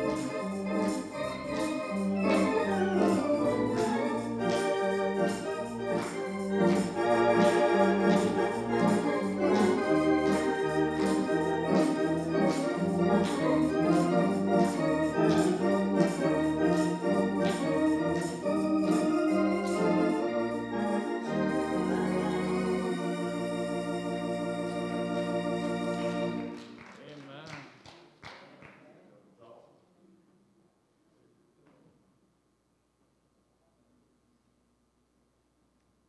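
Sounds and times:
organ music: 0:00.0 - 0:27.2.

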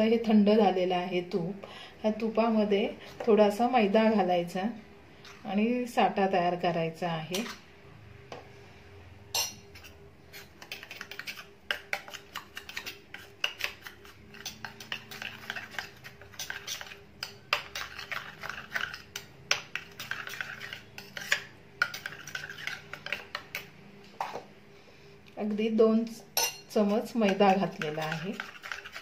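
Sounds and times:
spoon clinking in metal bowl: 0:26.4 - 0:29.0.

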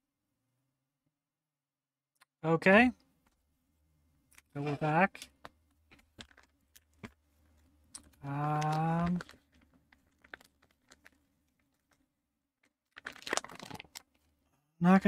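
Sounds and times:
foil pouch crinkling: 0:06.2 - 0:12.0, 0:12.6 - 0:14.2.

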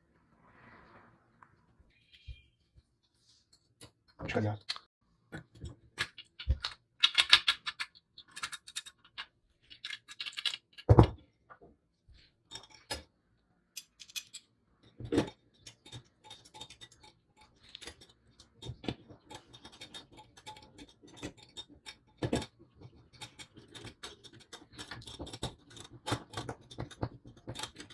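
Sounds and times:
small metal parts clinking: 0:13.8 - 0:14.6.

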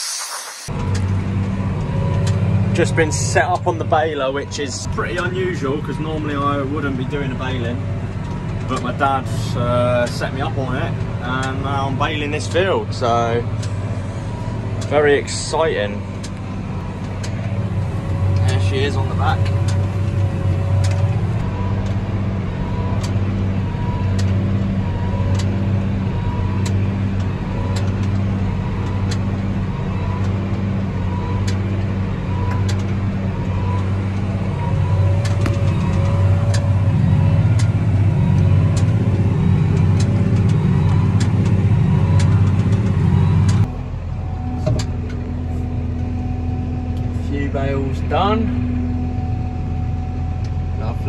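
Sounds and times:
tractor engine under load: 0:00.0 - 0:51.0
sharp clicks: 0:34.9 - 0:43.7.

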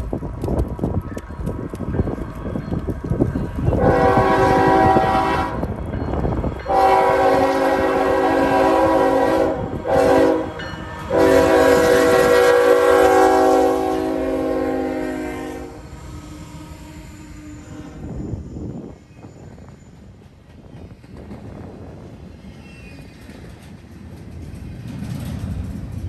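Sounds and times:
low locomotive rumble: 0:00.0 - 0:26.0
locomotive air horn: 0:03.7 - 0:05.7, 0:06.7 - 0:18.2.

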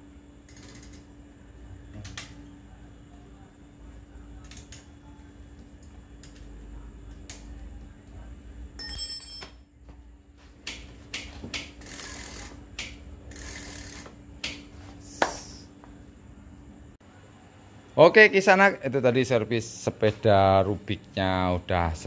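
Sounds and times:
bicycle chain clicks and rattles: 0:00.5 - 0:01.1, 0:11.8 - 0:12.6, 0:13.3 - 0:14.1
bright ringing tone: 0:08.8 - 0:09.8.

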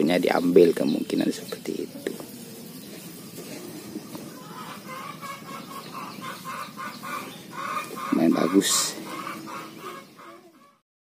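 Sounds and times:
short bird calls: 0:02.1 - 0:10.8.

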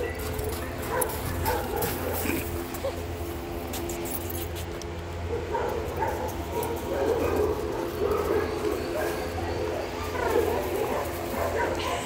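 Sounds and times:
dog barking and whining: 0:05.3 - 0:12.0.

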